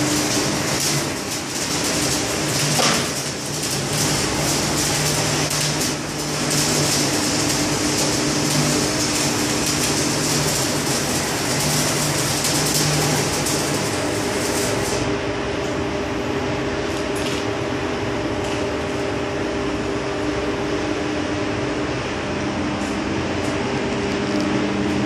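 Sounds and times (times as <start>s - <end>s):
arc welding crackling: 0.0s - 15.8s.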